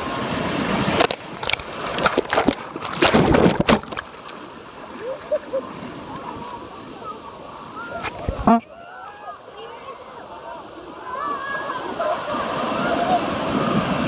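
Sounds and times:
shallow water washing: 0.0 - 14.0
water splashing against phone: 0.9 - 4.4.

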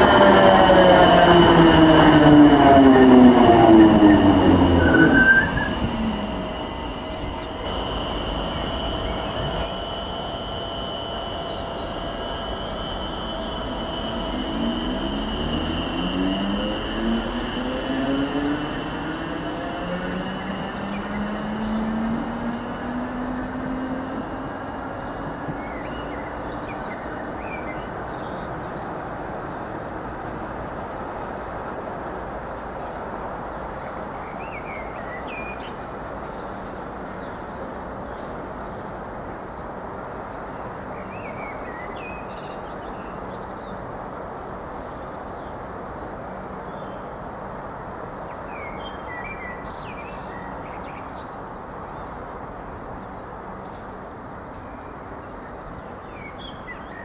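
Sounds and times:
electric train motor whine: 0.0 - 44.6
train running: 0.0 - 57.0
birds chirping: 3.5 - 18.5.

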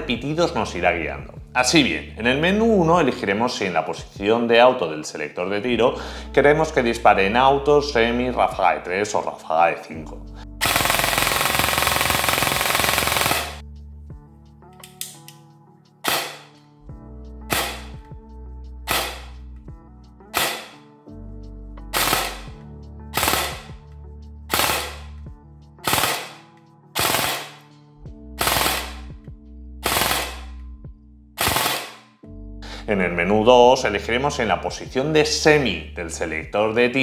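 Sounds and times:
background music: 0.0 - 37.0
airsoft rifle firing: 10.6 - 13.6, 16.0 - 16.6, 17.5 - 17.9, 18.9 - 19.4, 20.3 - 20.8, 22.0 - 22.6, 23.2 - 23.8, 24.5 - 25.2, 25.8 - 26.4, 27.0 - 27.7, 28.4 - 29.1, 29.8 - 30.5, 31.4 - 32.1.

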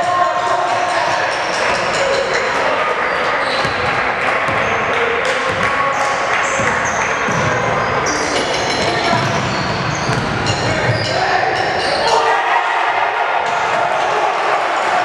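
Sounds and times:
echoing din of hall: 0.0 - 15.0
sneakers squeaking: 0.3 - 12.3.

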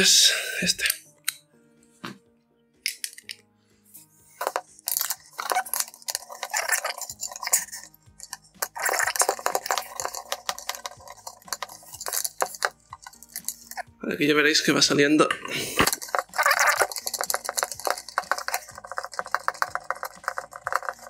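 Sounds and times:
metallic tool clicking: 2.8 - 3.4.

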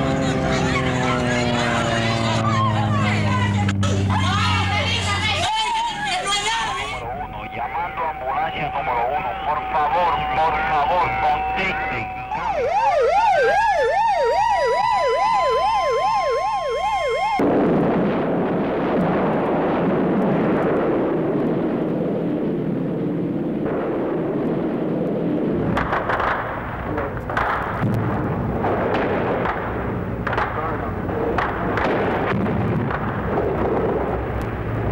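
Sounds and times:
siren yelping: 0.0 - 17.4
sharp bangs: 17.4 - 34.9.

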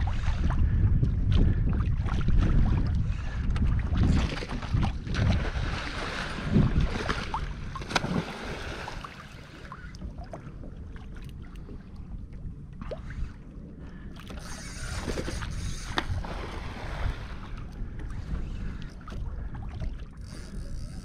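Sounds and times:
wind buffeting microphone: 0.0 - 9.1, 14.3 - 21.0
water lapping against kayak hull: 0.0 - 21.0.

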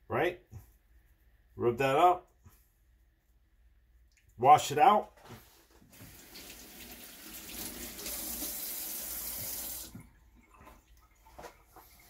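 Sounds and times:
faucet water running: 5.9 - 12.0.

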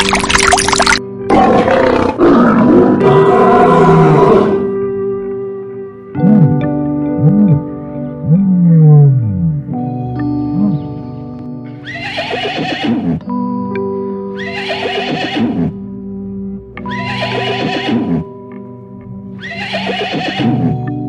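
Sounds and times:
background music: 0.0 - 21.0
horse whinnying: 11.8 - 13.3, 14.4 - 15.8, 16.9 - 18.3, 19.4 - 20.8.

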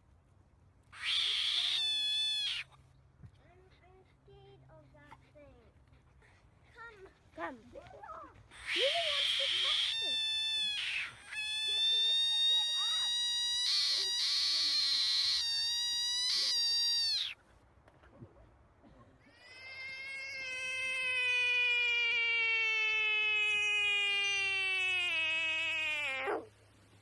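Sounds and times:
frog screaming: 1.0 - 2.7, 8.5 - 17.4, 19.4 - 26.5.

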